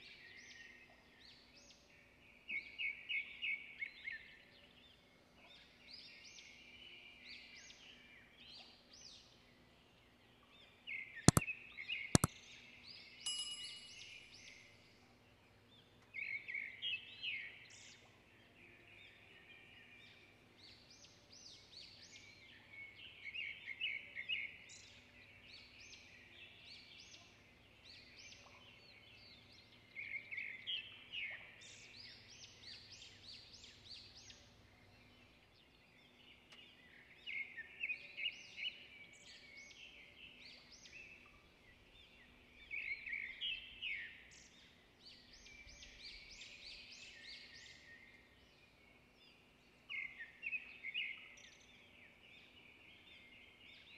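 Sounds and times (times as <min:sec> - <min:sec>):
small birds chirping: 0:12.2 - 0:18.3.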